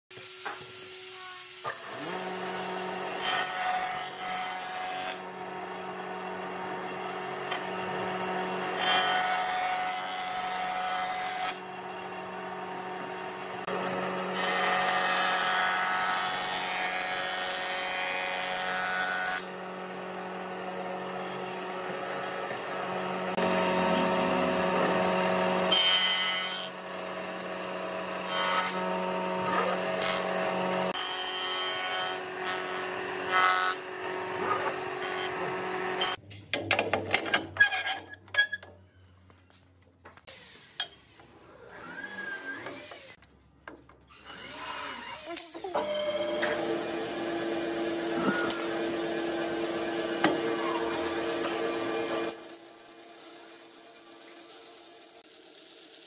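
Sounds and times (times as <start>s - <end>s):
jointer humming: 1.7s - 36.2s, 45.6s - 52.6s.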